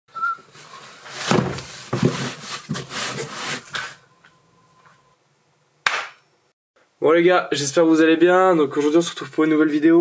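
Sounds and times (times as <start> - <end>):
cardboard boxes rustling: 0.5 - 4.0
dull thumps of boxes: 1.2 - 2.9.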